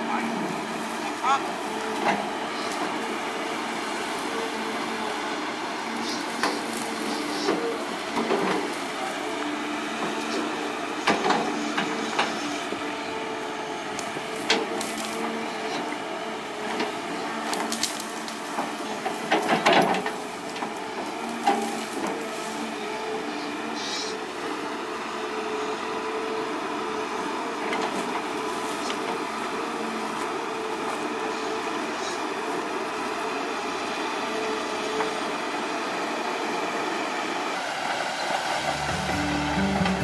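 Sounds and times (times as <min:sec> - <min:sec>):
excavator engine and hydraulics: 0:00.0 - 0:40.0
stems and roots cracking: 0:14.0 - 0:15.3, 0:17.3 - 0:22.3.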